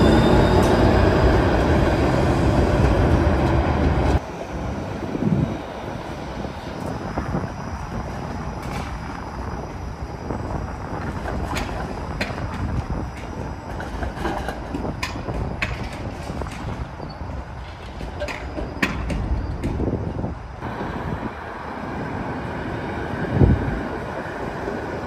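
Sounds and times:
streetcar rumbling: 0.0s - 25.0s
wheels clicking over rail joints: 8.0s - 9.8s, 10.4s - 21.1s.

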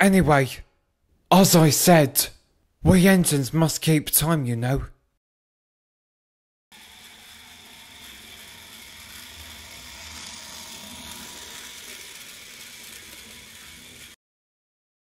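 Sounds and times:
toy train motor whirring: 6.7s - 14.2s.

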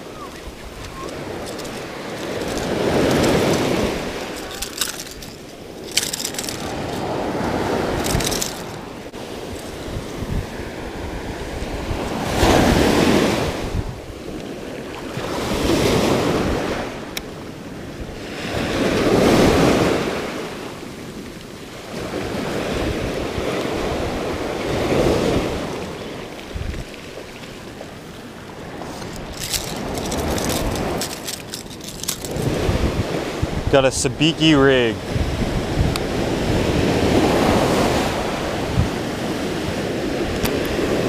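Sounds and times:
wind buffeting microphone: 0.0s - 20.7s, 21.8s - 41.0s
quick clicks: 0.8s - 7.1s, 8.0s - 8.8s, 28.9s - 32.6s
surf breaking on beach: 6.6s - 13.9s, 32.4s - 41.0s.

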